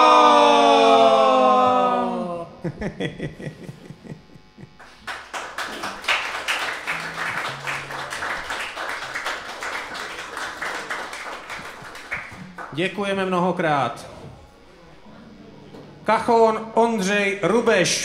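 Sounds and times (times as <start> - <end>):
audience applause: 4.8 - 12.8.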